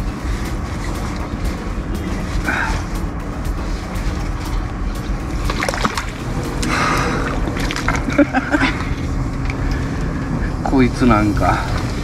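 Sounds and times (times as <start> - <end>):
steady low rumble: 0.0 - 12.0
fish splashing in water: 5.5 - 8.0.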